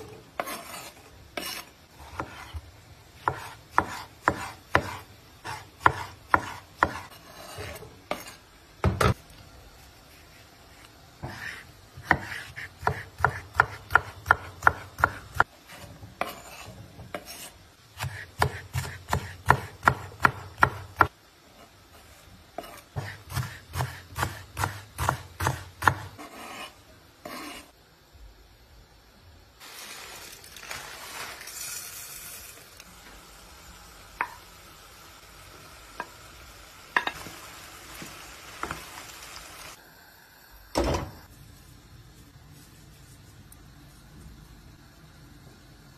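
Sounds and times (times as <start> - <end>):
knife chopping on wooden board: 0.4 - 2.6, 3.2 - 9.2, 11.2 - 21.1, 22.6 - 27.6.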